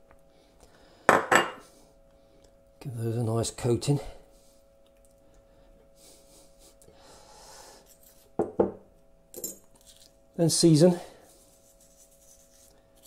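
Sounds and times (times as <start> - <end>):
fish fillets rubbing in a dish: 11.3 - 13.0.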